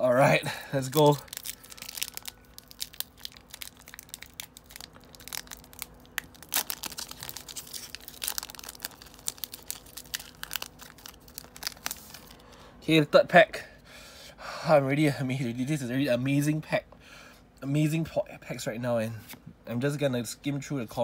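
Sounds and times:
foil wrapper tearing and crinkling: 0:00.7 - 0:12.5.

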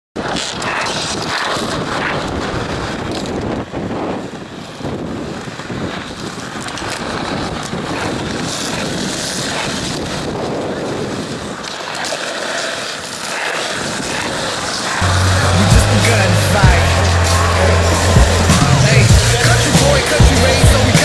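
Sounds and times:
wind buffeting microphone: 0:00.2 - 0:11.6
skateboard wheels rolling on concrete: 0:00.2 - 0:21.0.

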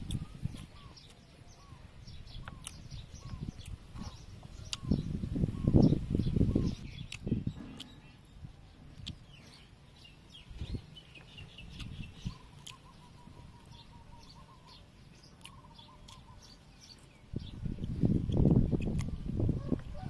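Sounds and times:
person chewing: 0:00.0 - 0:01.2, 0:02.4 - 0:04.9, 0:06.9 - 0:08.2, 0:08.8 - 0:09.8, 0:11.6 - 0:13.6, 0:15.3 - 0:17.1, 0:17.8 - 0:19.2
small birds chirping: 0:00.0 - 0:20.0.

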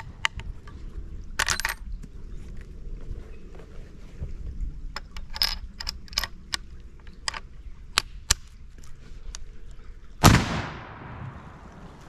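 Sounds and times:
rifle shot with echo: 0:10.2 - 0:11.9.

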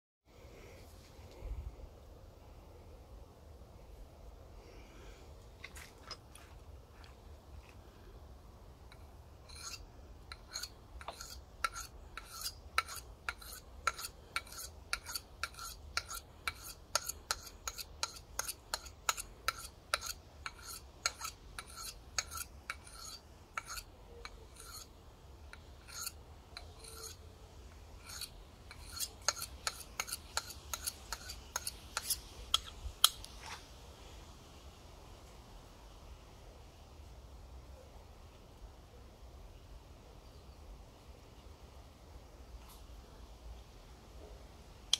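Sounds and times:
knife scraping on sharpening rod: 0:08.9 - 0:24.9, 0:25.5 - 0:32.8.

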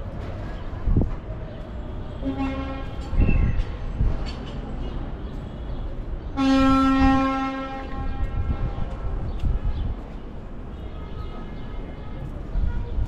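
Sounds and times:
horn sounding: 0:02.2 - 0:03.2, 0:06.4 - 0:08.9.

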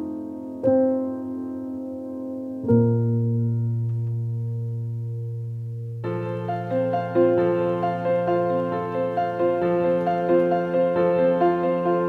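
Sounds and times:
slow solo piano: 0:00.0 - 0:12.0.

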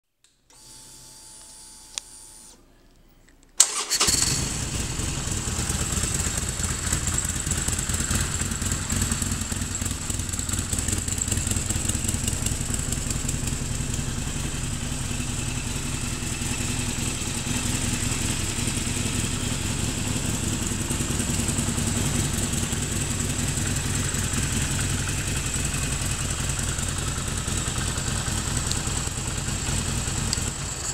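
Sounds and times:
ignition click: 0:03.6 - 0:04.2
starter whirr: 0:03.6 - 0:13.6
motorcycle engine idling: 0:03.7 - 0:30.9.

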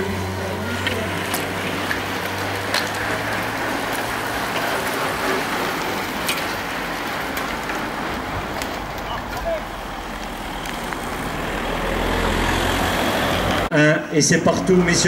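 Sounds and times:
bicycle tyres hissing: 0:00.0 - 0:13.7
car rumble: 0:00.0 - 0:13.7
bicycle clicks: 0:00.4 - 0:11.7.

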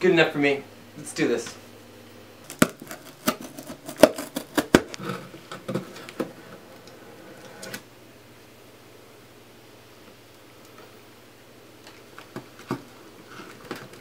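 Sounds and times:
knife cutting packing tape: 0:02.5 - 0:05.2.

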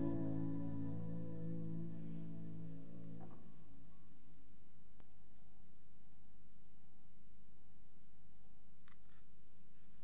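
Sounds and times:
steady low hum: 0:00.0 - 0:05.0.

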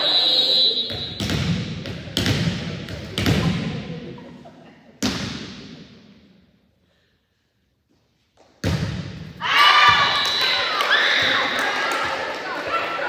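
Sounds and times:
volleyball smacks echoing: 0:08.6 - 0:12.3.

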